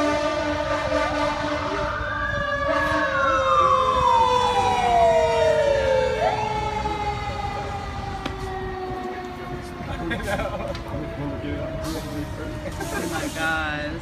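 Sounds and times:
fire engine siren wailing: 0:00.0 - 0:14.0
second steady siren tone: 0:01.8 - 0:10.1.

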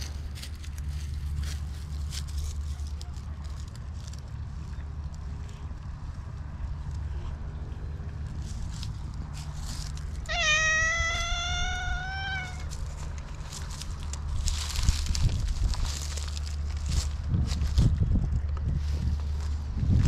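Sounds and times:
cat meowing: 0:10.2 - 0:12.8.

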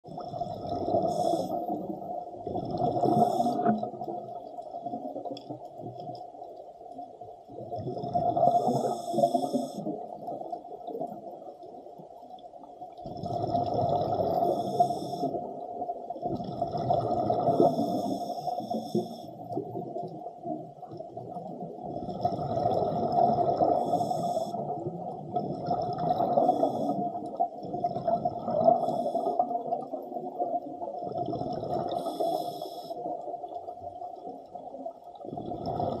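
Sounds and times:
hissing and bubbling: 0:00.1 - 0:12.0, 0:12.9 - 0:36.0
diver breathing through regulator: 0:01.0 - 0:01.8, 0:03.0 - 0:03.8, 0:08.4 - 0:09.9, 0:14.3 - 0:15.4, 0:17.4 - 0:19.4, 0:23.6 - 0:24.7, 0:31.8 - 0:33.0.

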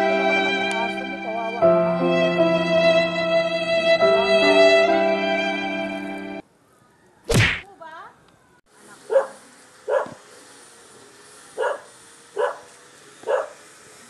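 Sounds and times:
sad violin music: 0:00.0 - 0:06.4
dog barking: 0:09.1 - 0:10.2, 0:11.6 - 0:13.6.

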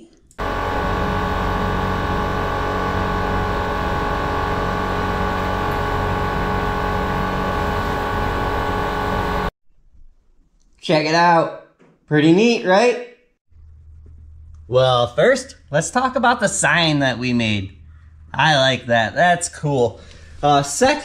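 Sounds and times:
laser cutter humming: 0:00.4 - 0:09.5.

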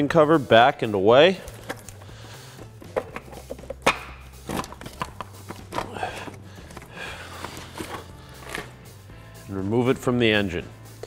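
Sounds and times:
plastic clicks and scraping: 0:02.9 - 0:08.7.

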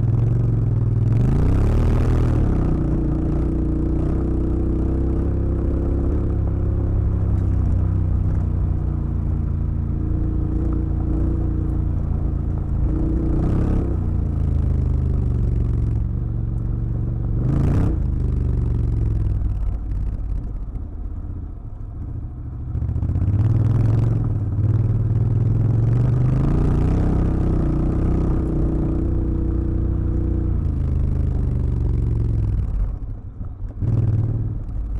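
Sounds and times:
gravel and chassis clatter: 0:00.0 - 0:34.9
motorcycle engine running: 0:00.0 - 0:34.9.

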